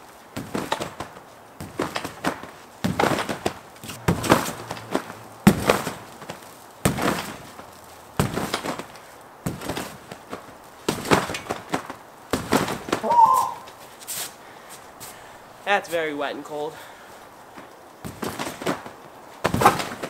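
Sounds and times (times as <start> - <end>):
thumps of landing on trampoline: 0.4 - 13.3, 17.5 - 20.0.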